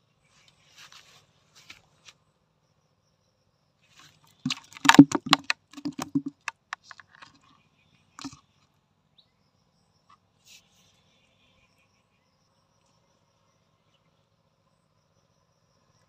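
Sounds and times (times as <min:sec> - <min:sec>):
fish flapping in plastic bucket: 0:04.0 - 0:07.4, 0:08.2 - 0:08.4
water splashing: 0:04.2 - 0:07.4.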